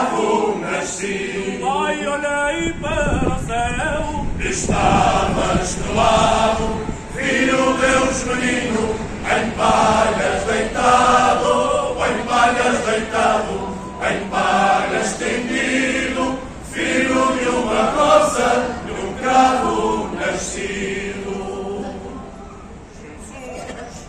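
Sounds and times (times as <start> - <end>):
men's choir singing: 0.0 - 22.4.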